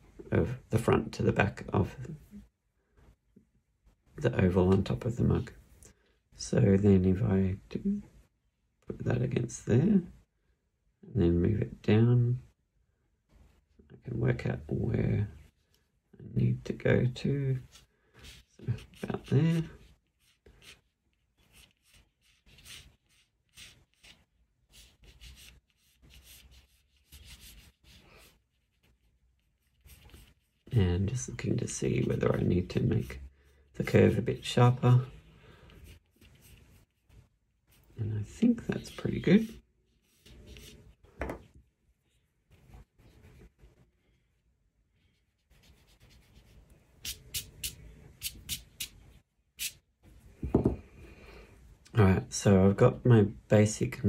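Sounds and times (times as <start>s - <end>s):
pencil scratching on paper: 17.6s - 30.8s, 35.7s - 41.1s, 45.1s - 49.0s
quick pencil strokes: 45.1s - 49.0s.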